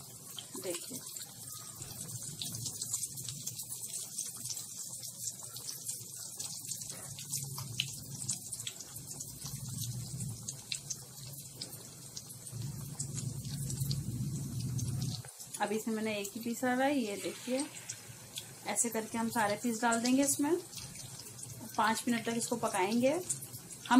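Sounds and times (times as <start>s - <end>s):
chicken sizzling in hot oil: 0.0s - 23.9s
low hum: 12.5s - 15.2s.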